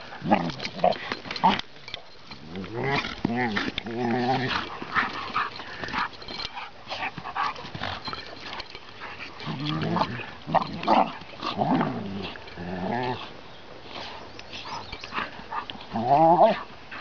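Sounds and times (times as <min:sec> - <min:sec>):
puppy growling: 0:02.4 - 0:05.2.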